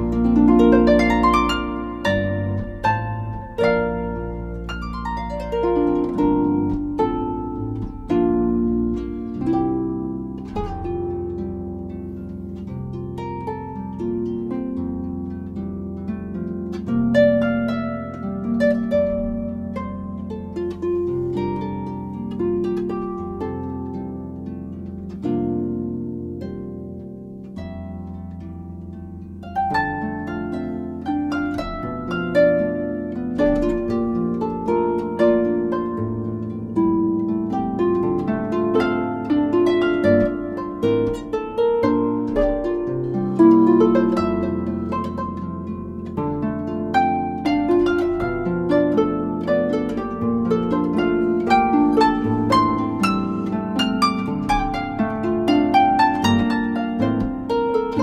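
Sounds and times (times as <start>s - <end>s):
jazz harp plucked notes: 0.0s - 58.0s.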